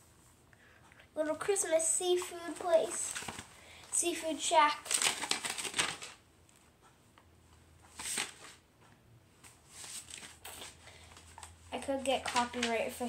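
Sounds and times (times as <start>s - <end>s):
paper pages turning: 2.2s - 3.5s, 4.7s - 6.2s, 7.9s - 8.6s, 9.4s - 13.0s
paper rustling: 2.2s - 3.5s, 4.7s - 6.2s, 7.9s - 8.6s, 9.4s - 13.0s.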